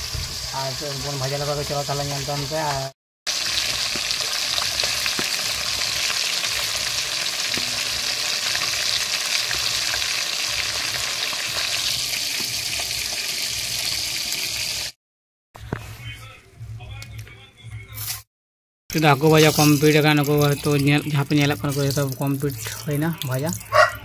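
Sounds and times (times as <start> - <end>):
fish frying in hot oil: 0.0 - 15.0.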